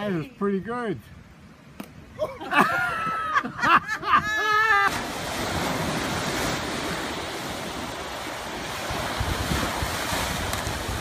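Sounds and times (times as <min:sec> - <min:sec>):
ocean surf washing ashore: 0:02.4 - 0:11.0
wind on microphone: 0:04.0 - 0:11.0.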